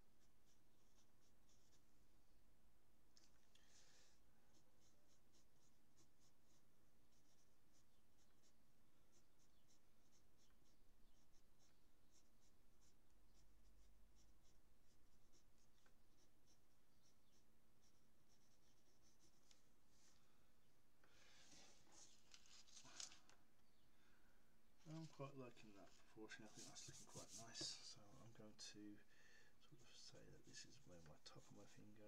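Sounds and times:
pencil scratching on paper: 0.0 - 1.9, 4.5 - 19.6, 25.8 - 28.2, 29.8 - 32.0.

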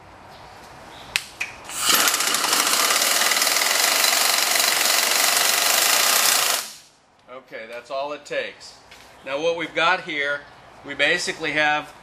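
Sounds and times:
air impact gun hammering: 1.7 - 6.9.

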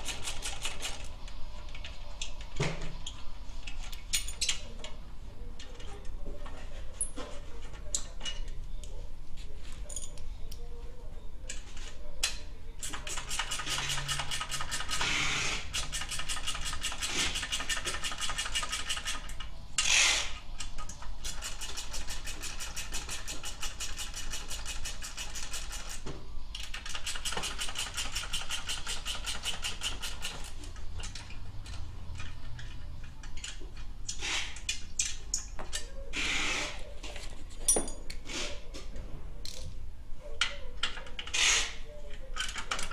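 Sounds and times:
ratchet wrench clicking: 26.6 - 34.8.

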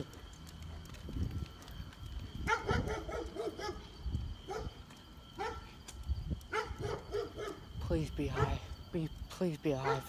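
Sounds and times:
dog barking: 2.4 - 3.9, 4.5 - 4.8, 5.4 - 5.7, 6.5 - 7.7, 8.3 - 8.6, 9.8 - 10.0.

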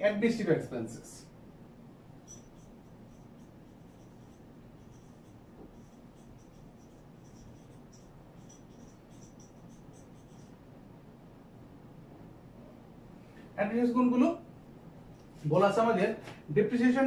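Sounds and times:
marker squeaking on whiteboard: 2.2 - 10.6.

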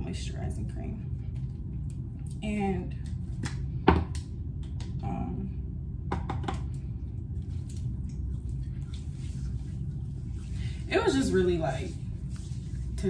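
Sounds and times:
low room hum: 0.0 - 13.0
cream rubbed onto skin: 7.5 - 13.0.

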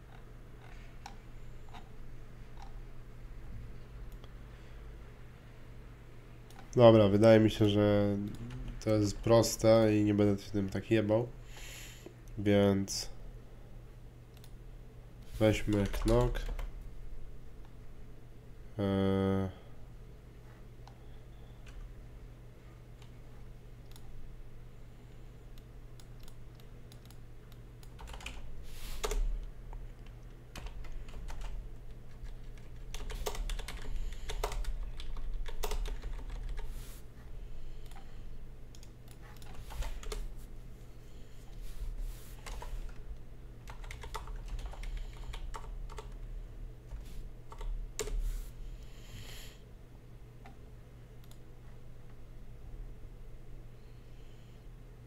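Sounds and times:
steady low hum: 0.0 - 55.0
typing on computer keyboard: 15.6 - 16.7, 27.8 - 28.4, 30.6 - 36.7, 43.7 - 46.2.

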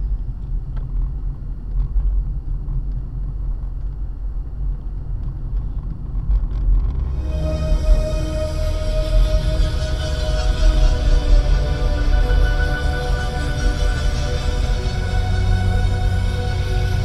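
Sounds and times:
car engine and road noise: 0.0 - 17.0
music: 6.9 - 17.0.

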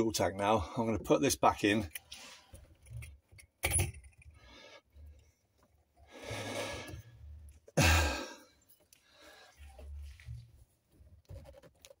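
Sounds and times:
heavy breath out: 6.1 - 7.2.

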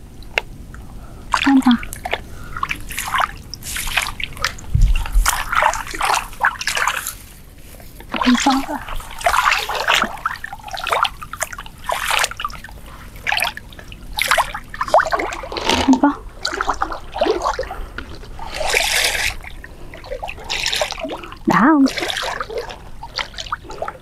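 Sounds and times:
shallow water splashing: 0.0 - 24.0.

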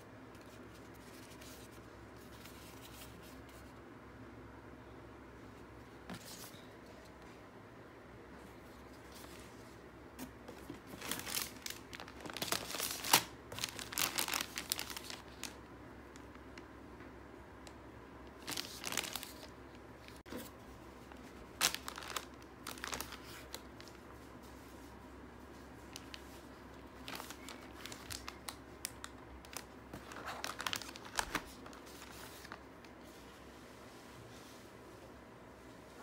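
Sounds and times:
plastic and paper crinkling: 10.2 - 16.6, 18.3 - 24.6, 25.7 - 33.3.

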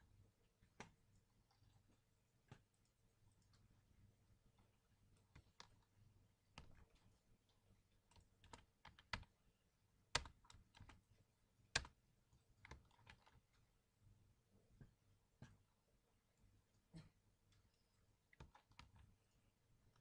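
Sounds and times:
faint low hum: 0.0 - 20.0
keyboard typing: 5.2 - 5.9, 6.5 - 7.1, 8.0 - 9.4, 10.1 - 11.1, 11.7 - 13.6, 18.3 - 19.2.

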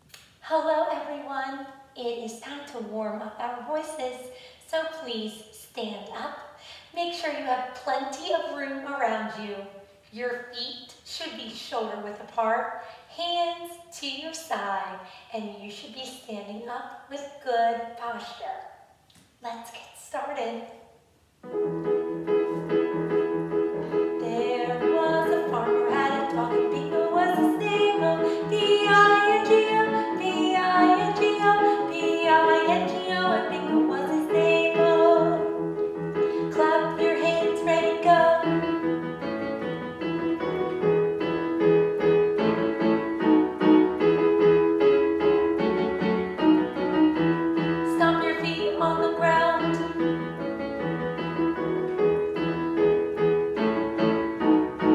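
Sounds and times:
woman singing warm-up patterns: 0.4 - 9.2, 24.2 - 35.6, 36.3 - 38.6, 47.8 - 49.9
keyboard piano chords: 21.4 - 54.9.

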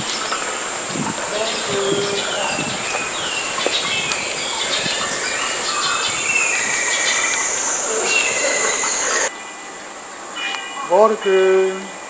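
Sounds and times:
high-pitched insect buzz: 0.0 - 9.3
falling bird chirps: 0.0 - 9.6.

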